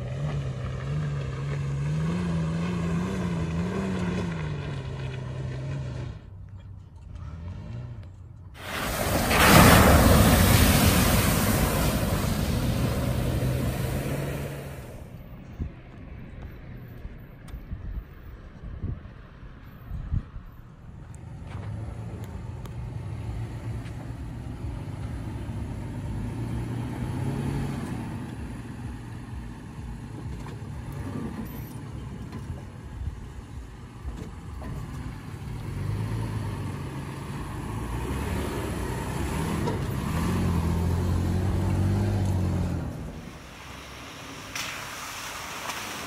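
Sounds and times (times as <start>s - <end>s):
truck engine under load: 0.0s - 15.5s, 21.6s - 46.0s.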